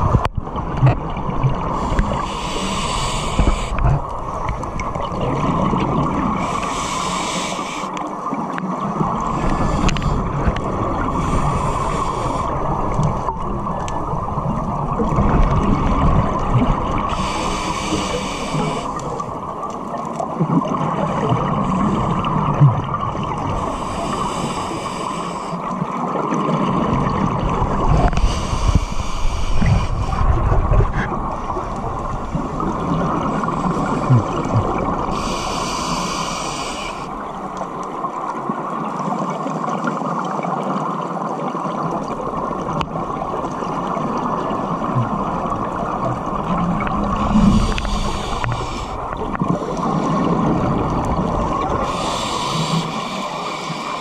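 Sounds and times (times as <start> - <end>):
gurgling exhale bubbles: 0.0 - 54.0
regulator inhale hiss: 1.8 - 3.9, 6.4 - 8.1, 9.4 - 10.5, 11.2 - 12.7, 17.1 - 19.3, 23.5 - 25.7, 28.0 - 30.4, 33.4 - 37.3, 47.2 - 50.3, 51.7 - 54.0.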